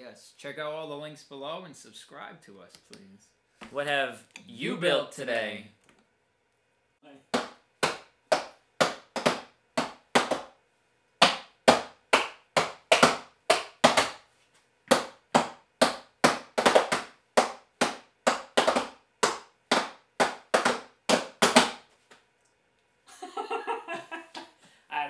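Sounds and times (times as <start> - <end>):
hands clapping and slapping: 7.3 - 10.6, 11.2 - 14.3, 14.9 - 22.2.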